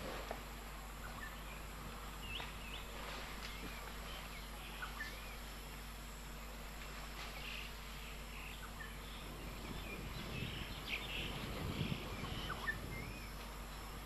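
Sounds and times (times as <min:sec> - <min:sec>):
low rumbling noise: 0:00.0 - 0:14.0
steady background hiss: 0:00.0 - 0:14.0
birds chirping and whistling: 0:01.0 - 0:05.5, 0:07.3 - 0:13.9.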